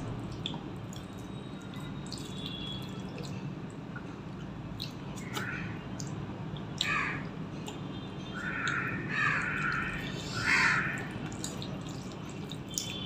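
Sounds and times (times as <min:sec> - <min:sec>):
crow cawing: 0:05.3 - 0:05.8, 0:06.8 - 0:07.2, 0:08.3 - 0:11.1.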